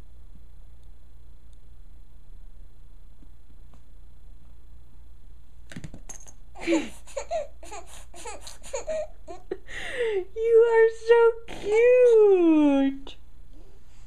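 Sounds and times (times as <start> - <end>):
baby laughing: 6.6 - 9.7.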